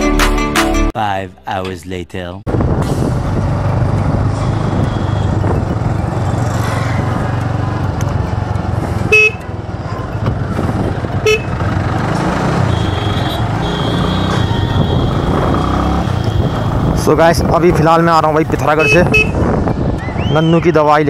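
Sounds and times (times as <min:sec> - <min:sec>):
wind noise on microphone: 0:02.5 - 0:07.3, 0:10.1 - 0:11.8, 0:13.8 - 0:21.0
motorcycle engine running: 0:02.6 - 0:19.7
vehicle horn beeps: 0:04.6 - 0:05.4, 0:09.1 - 0:09.5, 0:11.2 - 0:11.6, 0:12.6 - 0:15.4, 0:16.0 - 0:16.7, 0:18.8 - 0:19.4.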